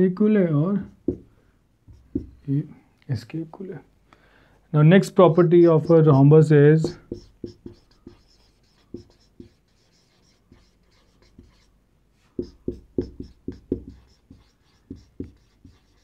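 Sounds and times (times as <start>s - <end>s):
marker writing on whiteboard: 0.8s - 1.3s, 1.9s - 2.4s, 5.3s - 6.2s, 6.8s - 16.0s.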